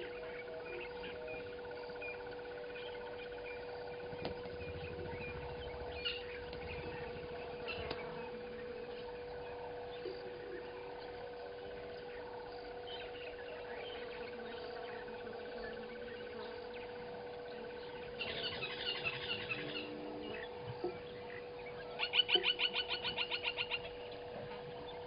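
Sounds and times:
constant hum: 0.0s - 25.0s
low rumble: 3.6s - 9.9s
faint clicks: 4.1s - 4.6s, 7.7s - 8.1s.

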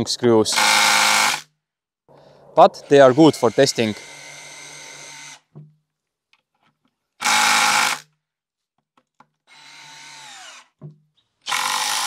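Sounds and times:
cordless drill motor whirring: 0.5s - 1.4s, 2.8s - 5.5s, 7.2s - 8.1s, 9.5s - 10.8s, 11.4s - 12.0s.

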